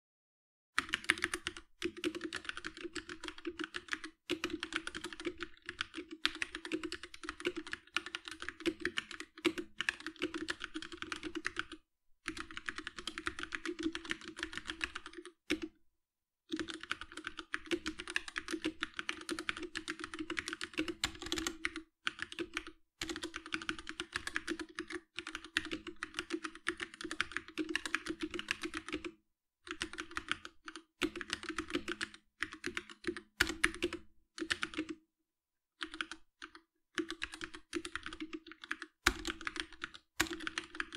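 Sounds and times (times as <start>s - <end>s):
mechanical keyboard keystroke clacks: 37.1s - 40.9s.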